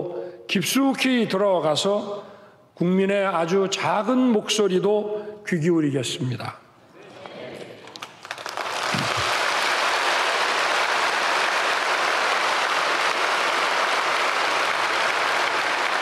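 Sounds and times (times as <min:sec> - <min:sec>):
large crowd applauding: 0:07.1 - 0:16.0.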